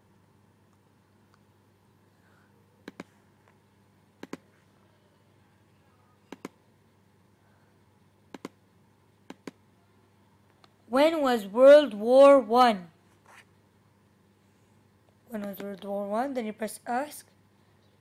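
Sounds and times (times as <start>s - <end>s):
computer mouse button clicks: 2.8s - 3.1s, 6.3s - 6.6s, 8.3s - 8.6s.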